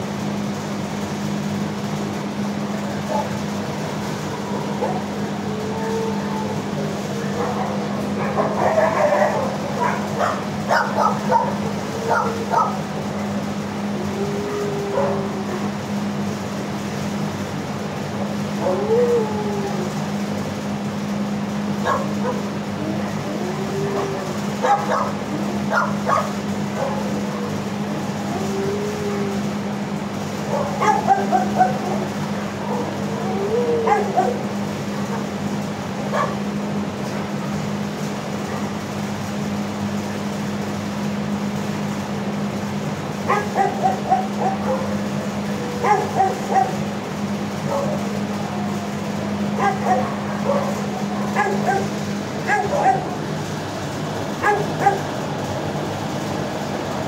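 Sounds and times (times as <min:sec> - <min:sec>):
low mechanical hum: 0:00.0 - 0:57.0
faint dog howl: 0:04.3 - 0:16.3, 0:18.3 - 0:20.4, 0:21.8 - 0:35.3, 0:43.3 - 0:53.2.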